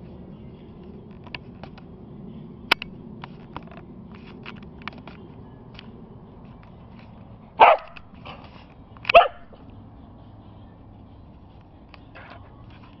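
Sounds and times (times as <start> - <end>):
dog barking: 7.6 - 8.0, 9.1 - 9.6.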